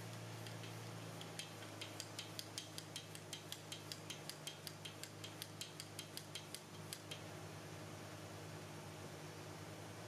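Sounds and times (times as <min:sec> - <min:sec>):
hand ratchet clicking: 0:00.0 - 0:07.2
low steady hum: 0:00.0 - 0:10.0.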